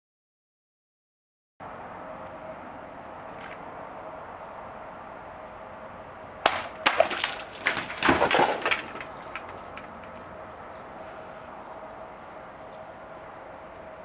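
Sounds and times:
swords striking plastic jug: 6.5s - 9.0s
water splashing and pieces knocking: 6.5s - 9.9s.

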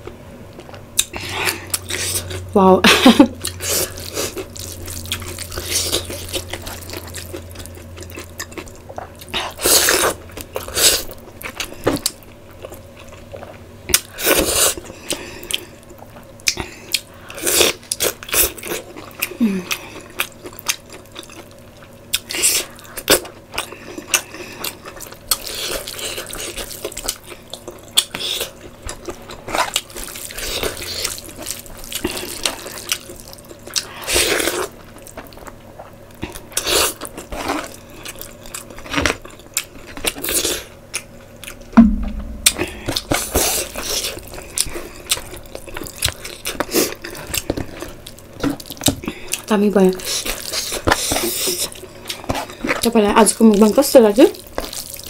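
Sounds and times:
heavy thump: 41.8s - 43.5s.

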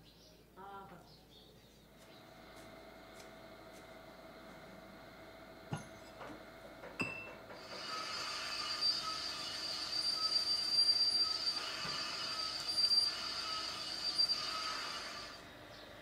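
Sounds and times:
high-pitched mechanical squeal: 7.6s - 15.5s.

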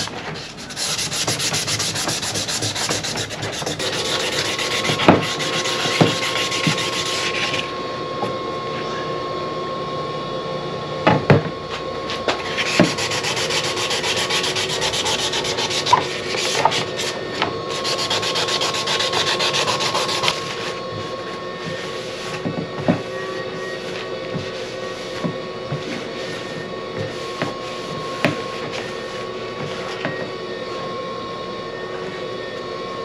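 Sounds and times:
hand sanding rubbing strokes: 0.0s - 7.7s, 12.4s - 22.4s, 23.4s - 30.0s
steady hum: 0.0s - 33.0s.

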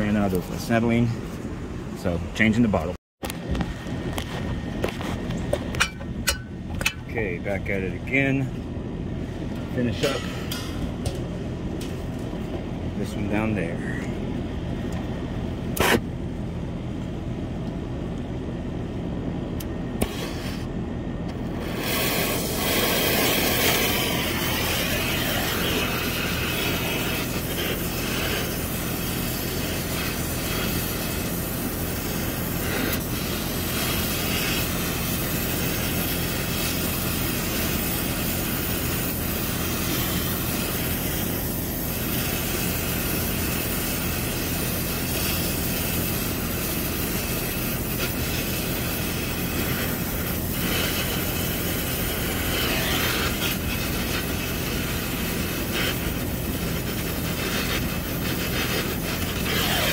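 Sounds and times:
torch burning with rushing hiss: 20.0s - 20.7s, 21.5s - 59.9s.

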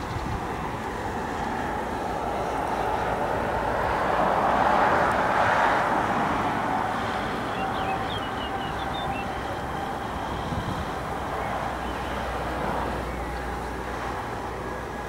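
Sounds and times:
jet engine rumble with whine: 0.0s - 15.0s.

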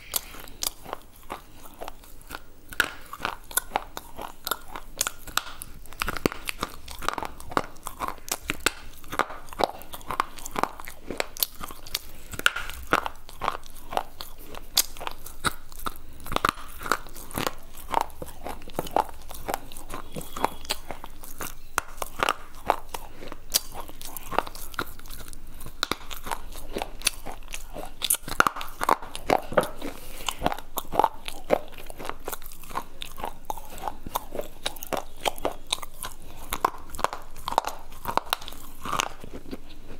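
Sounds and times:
chewing crunches: 0.0s - 39.9s.

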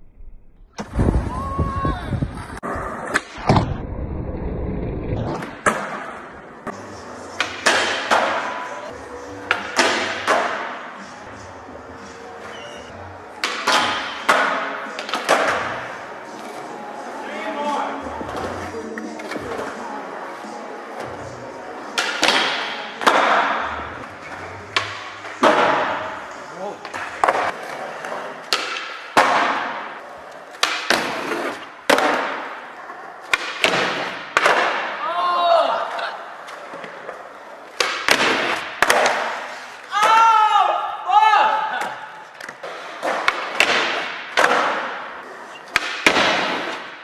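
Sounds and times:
skateboard wheels rolling on concrete: 0.7s - 9.5s, 14.8s - 22.1s, 30.0s - 34.2s.

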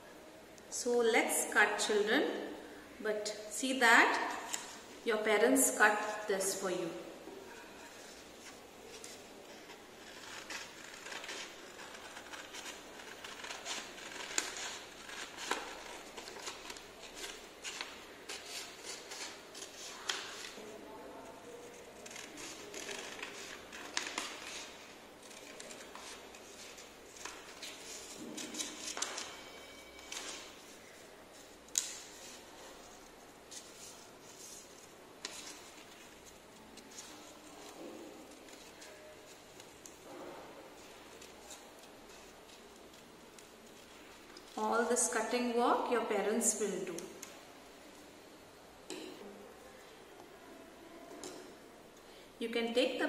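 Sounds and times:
paper rustling: 7.8s - 44.6s
scissors snipping paper: 10.0s - 20.6s, 21.5s - 29.3s.

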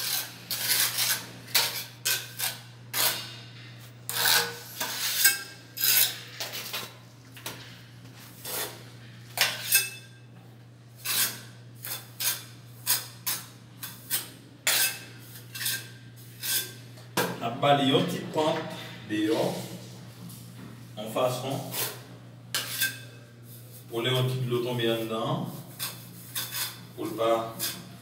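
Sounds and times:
trowel scraping mortar on tile: 0.0s - 3.2s, 4.1s - 6.9s, 8.4s - 8.8s, 11.0s - 16.8s, 21.6s - 23.2s, 25.6s - 27.9s
steady low hum: 0.0s - 28.0s.

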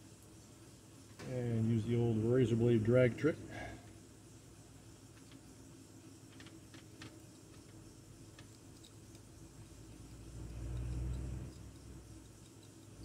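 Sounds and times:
steady low hum: 0.0s - 13.0s
faint ticks: 10.0s - 13.0s.

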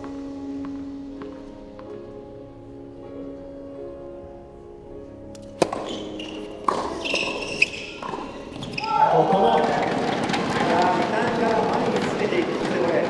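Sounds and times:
background music: 0.0s - 13.0s
racket hitting tennis ball: 5.4s - 8.5s.

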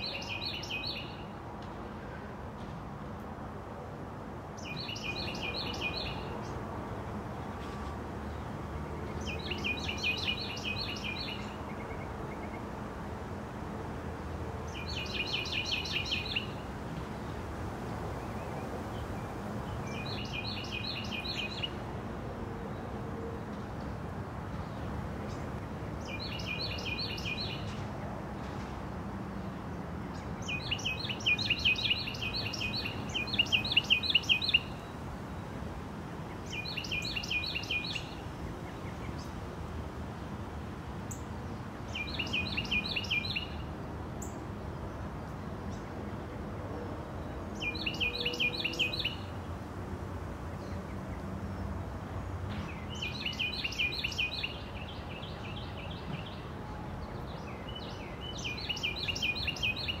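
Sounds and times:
faint background noise: 0.0s - 60.0s
songbird trilling: 14.7s - 16.5s, 30.4s - 34.7s, 47.6s - 49.2s.

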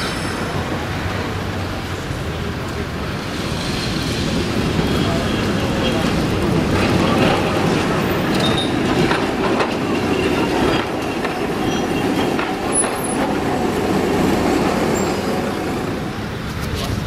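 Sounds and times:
tram rumbling: 0.0s - 17.0s
wheels clicking over rail joints: 2.5s - 17.0s
high wheel squeals: 8.0s - 9.0s, 9.8s - 13.3s, 14.2s - 15.8s.

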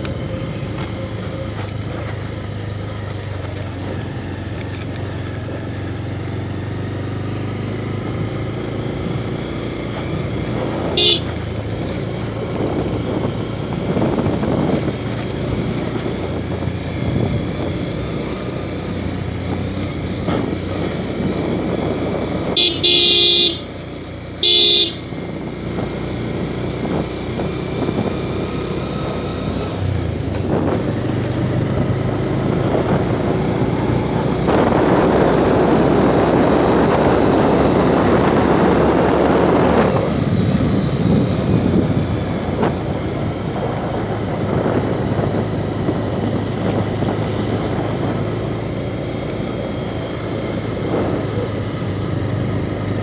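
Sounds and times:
motorcycle engine running: 0.0s - 53.0s
road noise: 0.0s - 53.0s
motorcycle horn beeping: 10.8s - 11.5s, 22.5s - 23.8s, 24.4s - 25.2s.

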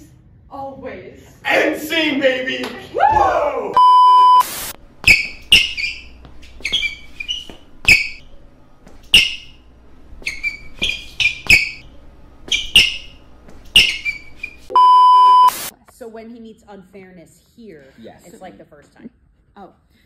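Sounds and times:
sneakers stamping and squeaking: 5.0s - 14.7s.

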